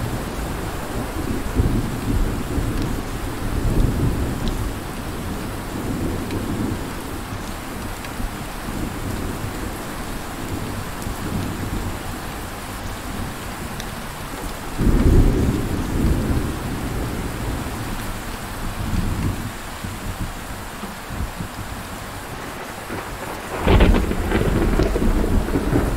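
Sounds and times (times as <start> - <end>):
heavy rain: 0.0 - 25.9
thunder rumbling: 14.7 - 21.6, 22.2 - 25.9
loud thunderclap: 22.3 - 25.9.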